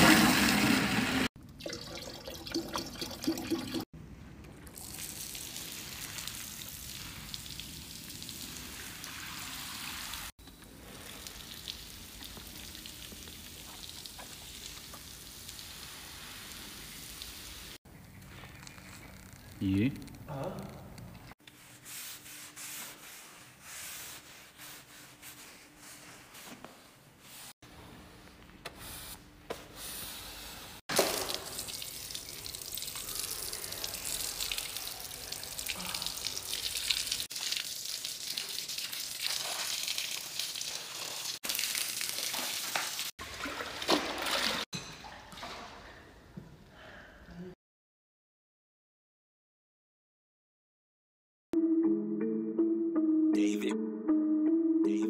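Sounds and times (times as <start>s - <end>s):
hose water spraying on tiles: 4.8s - 17.8s, 30.1s - 43.2s.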